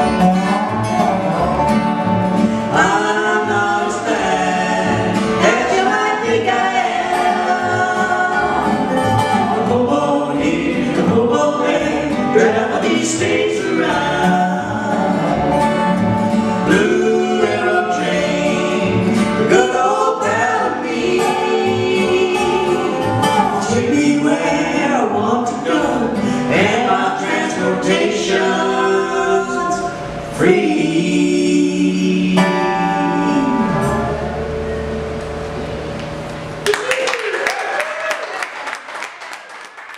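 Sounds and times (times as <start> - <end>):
resonator guitar: 0.0 - 36.6
strummed acoustic guitar: 0.0 - 36.6
upright bass: 0.0 - 36.7
woman and man singing: 2.7 - 16.0, 16.6 - 34.2.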